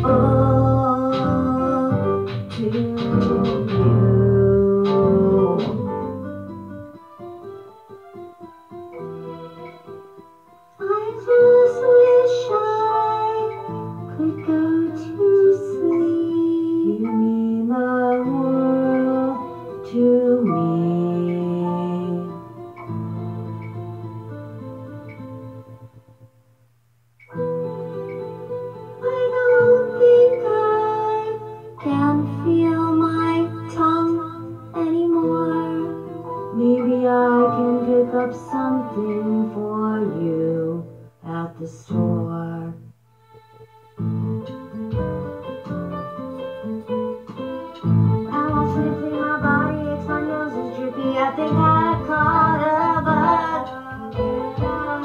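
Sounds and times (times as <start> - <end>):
person singing: 0.0 - 6.2, 10.7 - 22.8, 28.9 - 43.0, 47.4 - 55.0
plucked-string accompaniment: 0.0 - 26.2, 27.2 - 55.0
sustained backing chords: 0.0 - 55.0
high voice singing: 48.3 - 55.0.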